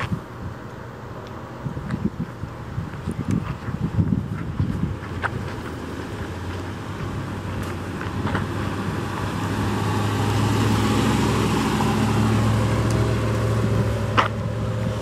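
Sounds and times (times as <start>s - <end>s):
pickup truck engine driving past: 5.1s - 15.0s.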